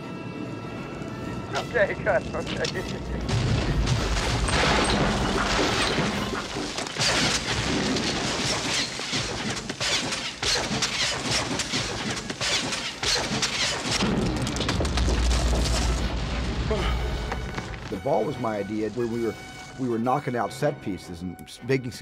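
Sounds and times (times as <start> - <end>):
continuous rumbling: 0.2 - 19.4
falling rock crashes and thuds: 3.2 - 18.0.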